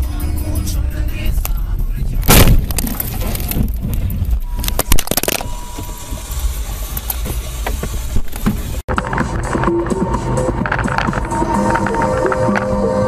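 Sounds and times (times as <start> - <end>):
dashcam rattling and knocking: 2.5 - 13.0.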